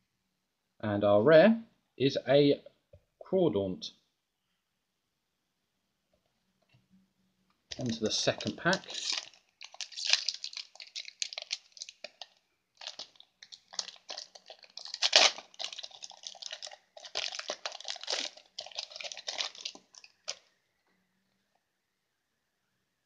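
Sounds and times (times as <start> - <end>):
foil wrapper crinkling and tearing: 7.7 - 20.5.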